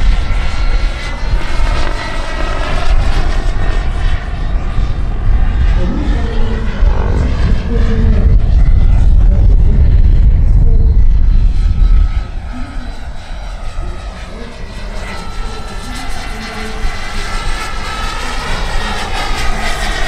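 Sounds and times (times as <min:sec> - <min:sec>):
helicopter rotor: 0:00.0 - 0:20.0
helicopter turbine whining: 0:00.0 - 0:20.0
wind rumble on microphone: 0:00.0 - 0:20.0.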